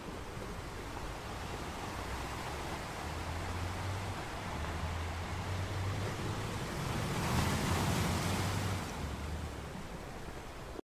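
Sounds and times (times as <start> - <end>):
waves breaking against rocks: 0.0 - 10.8.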